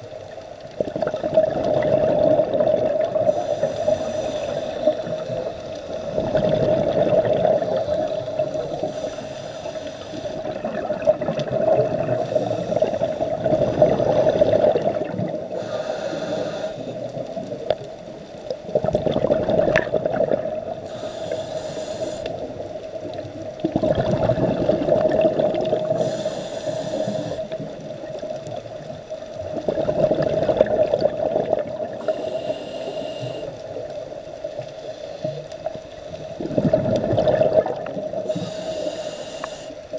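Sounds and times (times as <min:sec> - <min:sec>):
bubbling exhalation: 0:00.8 - 0:03.4, 0:06.2 - 0:07.8, 0:10.4 - 0:15.4, 0:18.7 - 0:20.8, 0:23.6 - 0:26.1, 0:29.4 - 0:32.0, 0:36.4 - 0:38.3
regulator inhalation hiss: 0:03.2 - 0:06.5, 0:07.5 - 0:10.6, 0:12.1 - 0:14.9, 0:15.5 - 0:17.2, 0:20.8 - 0:22.6, 0:25.8 - 0:27.7, 0:31.9 - 0:33.7, 0:34.8 - 0:36.6, 0:38.1 - 0:39.9.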